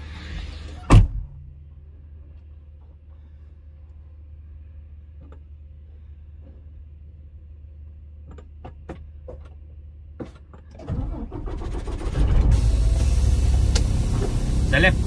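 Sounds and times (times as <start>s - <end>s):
clicks and knocks in truck cab: 8.2s - 10.8s
truck diesel engine starting: 10.7s - 15.0s.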